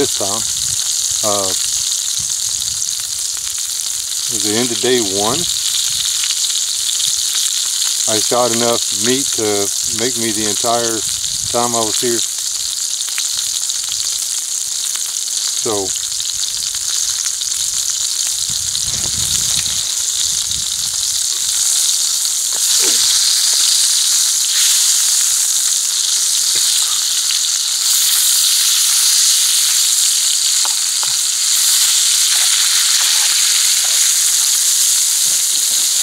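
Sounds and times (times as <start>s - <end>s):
meat sizzling in a skillet: 0.0s - 36.0s.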